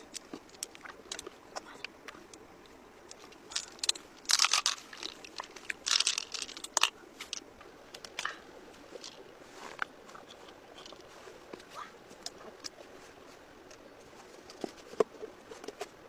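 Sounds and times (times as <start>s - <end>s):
crunchy rustling of shell: 0.0s - 11.5s.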